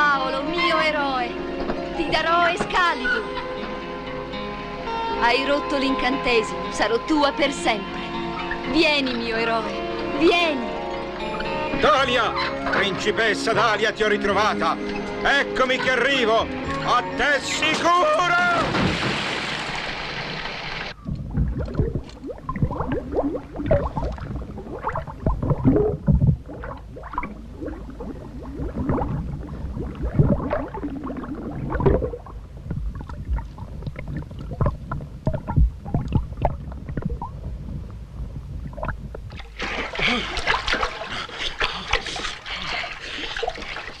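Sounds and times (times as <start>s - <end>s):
water rushing: 17.6s - 37.9s, 38.6s - 44.0s
water splashing and sloshing: 17.7s - 44.0s.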